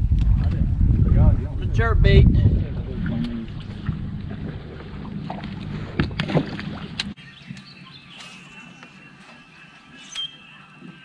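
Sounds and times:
wind rumble on microphone: 0:00.0 - 0:07.2.

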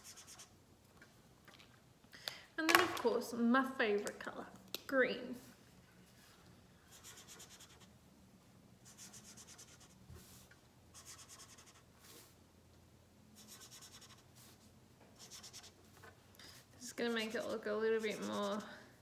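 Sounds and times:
marker scratching on paper: 0:00.0 - 0:00.5, 0:06.9 - 0:07.9, 0:08.8 - 0:12.3, 0:13.4 - 0:14.6, 0:15.2 - 0:15.8, 0:17.1 - 0:18.8.

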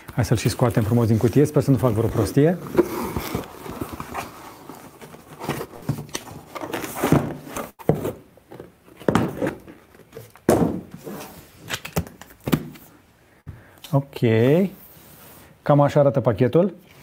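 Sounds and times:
cardboard scraping and rustling: 0:00.4 - 0:11.5.

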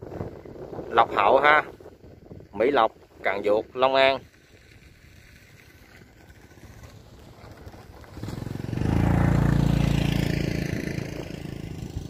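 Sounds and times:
motorbike engine running: 0:06.4 - 0:12.0.

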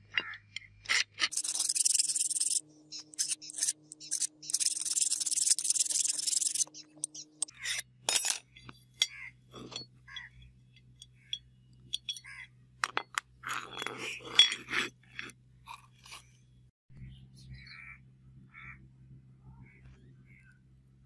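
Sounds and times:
metal scraping: 0:00.0 - 0:16.4
light metal clicks and clinks: 0:08.1 - 0:14.6.

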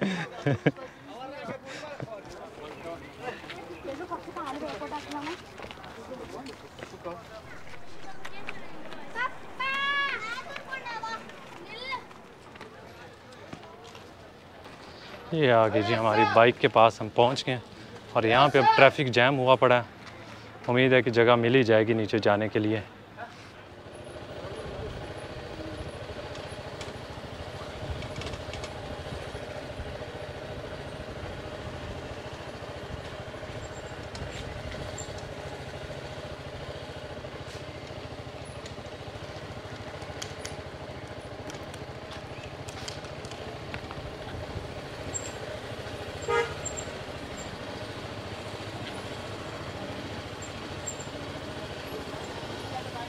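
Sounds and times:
traffic engine rumble: 0:00.0 - 0:53.0
vehicle horn toot: 0:46.2 - 0:47.0.

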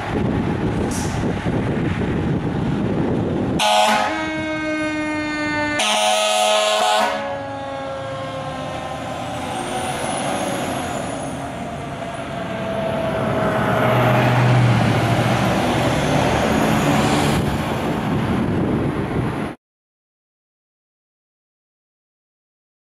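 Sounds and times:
fire engine engine under load: 0:00.0 - 0:19.5
siren falling in pitch: 0:03.6 - 0:09.6.

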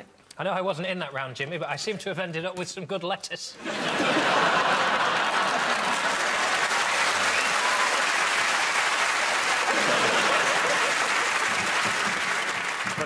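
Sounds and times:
audience applauding: 0:03.7 - 0:13.0.

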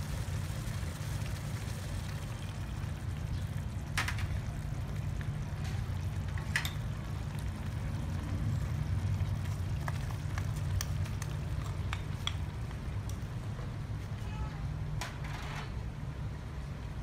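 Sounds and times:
sauce simmering in a pan: 0:00.0 - 0:13.5
gas stove rumble: 0:00.0 - 0:16.5.

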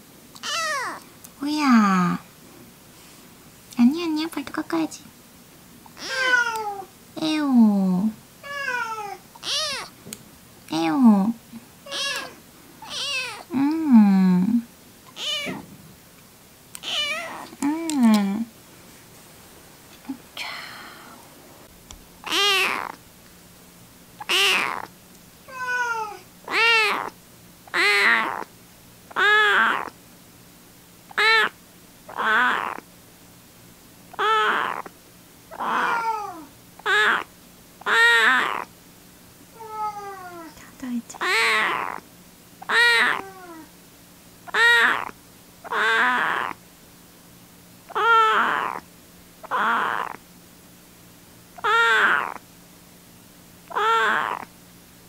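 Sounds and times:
kitten meowing: 0:00.4 - 0:01.0, 0:06.0 - 0:06.8, 0:08.5 - 0:09.9, 0:11.9 - 0:13.5, 0:15.1 - 0:15.6, 0:16.8 - 0:17.5, 0:22.3 - 0:23.0, 0:24.2 - 0:24.9, 0:25.5 - 0:28.5, 0:29.2 - 0:29.9, 0:31.2 - 0:31.5, 0:32.1 - 0:32.8, 0:34.1 - 0:34.9, 0:35.5 - 0:38.7, 0:41.2 - 0:42.0, 0:42.7 - 0:43.7, 0:44.5 - 0:46.6, 0:47.9 - 0:48.8, 0:49.4 - 0:50.2, 0:51.6 - 0:52.4, 0:53.7 - 0:54.5.

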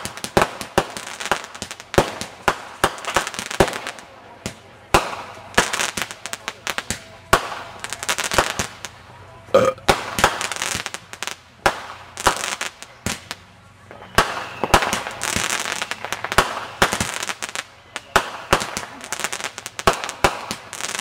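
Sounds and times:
fireworks bangs: 0:00.0 - 0:09.0, 0:09.8 - 0:21.0
fireworks rushing hiss: 0:09.9 - 0:21.0.

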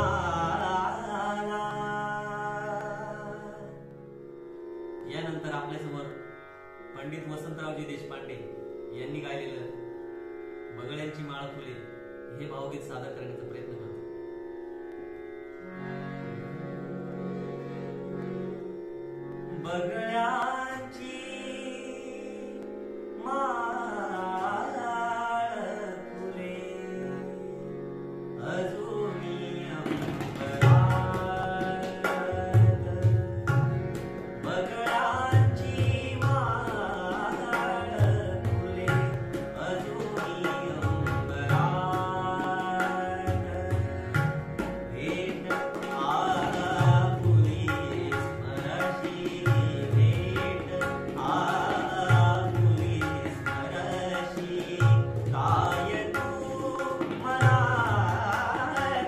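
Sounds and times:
man singing: 0:00.0 - 0:03.8, 0:19.5 - 0:27.5, 0:28.4 - 0:59.0
harmonium: 0:00.0 - 0:59.0.

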